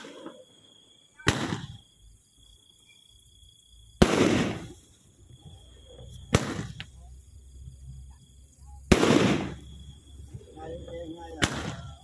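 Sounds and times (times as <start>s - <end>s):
firework bangs: 0.0s - 0.5s, 1.2s - 2.1s, 3.9s - 5.0s, 6.2s - 7.1s, 8.8s - 12.0s.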